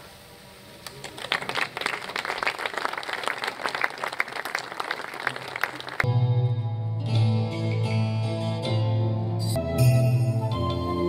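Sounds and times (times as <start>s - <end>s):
crowd applauding: 0.8s - 6.1s
music: 6.1s - 11.0s.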